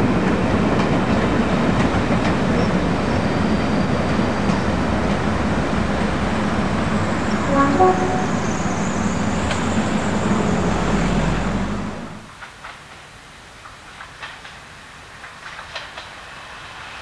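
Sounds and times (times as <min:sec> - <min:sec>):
train rumbling over bridge: 0:00.0 - 0:12.5
train horn tones: 0:07.3 - 0:09.2.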